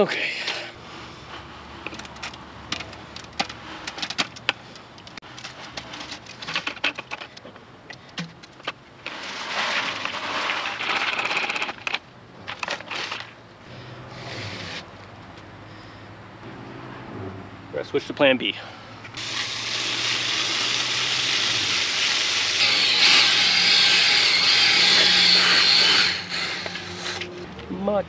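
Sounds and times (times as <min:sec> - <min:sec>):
concrete scraping bucket: 0:09.0 - 0:13.4, 0:19.2 - 0:27.3
wet concrete pouring: 0:19.2 - 0:22.6.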